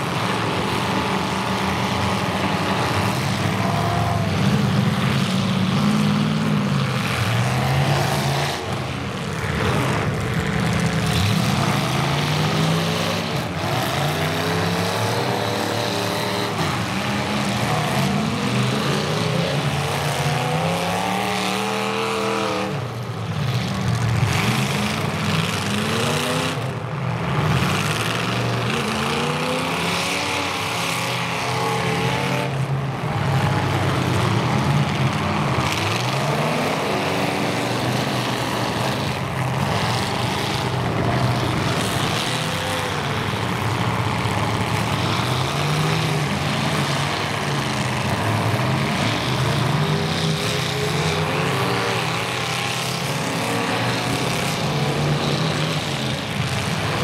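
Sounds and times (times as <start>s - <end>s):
car engines revving hard: 0.0s - 57.0s.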